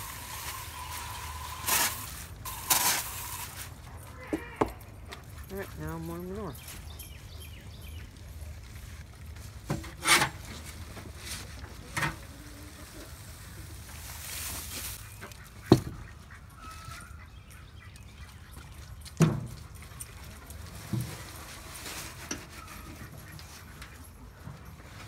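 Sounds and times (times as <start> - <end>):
hay rustling: 0.0 - 3.8, 10.3 - 15.4, 20.6 - 23.8.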